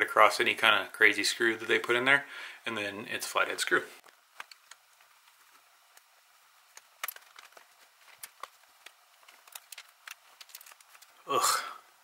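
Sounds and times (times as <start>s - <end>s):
handling plastic toy: 4.0s - 11.2s.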